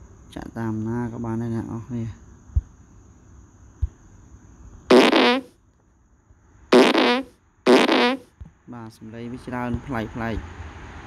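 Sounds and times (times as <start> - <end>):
fart sound effect: 4.9 - 5.5, 6.7 - 8.3.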